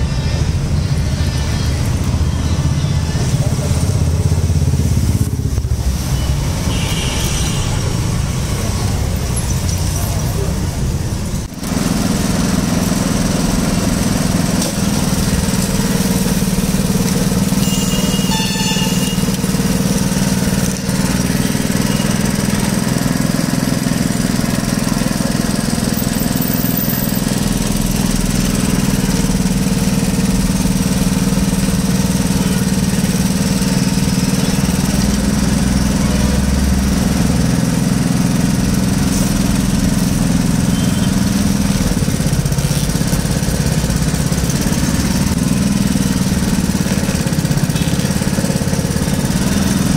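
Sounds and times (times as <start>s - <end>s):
juice crusher low drone: 0.0s - 49.9s.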